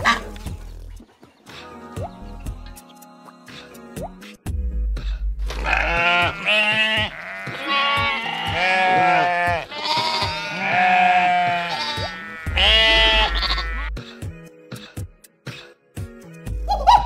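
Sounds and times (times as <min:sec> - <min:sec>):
background music: 0:00.0 - 0:17.0
sheep bleating: 0:05.5 - 0:14.0.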